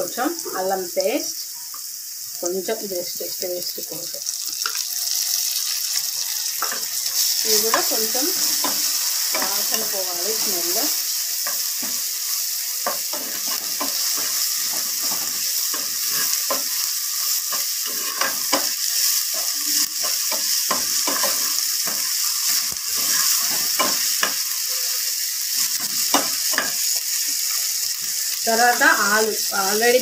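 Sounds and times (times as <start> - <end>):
onions sizzling in hot oil: 0.0 - 30.0
spatula scraping and knocking pan: 6.6 - 10.8, 11.4 - 12.2, 12.8 - 24.4, 25.7 - 26.8.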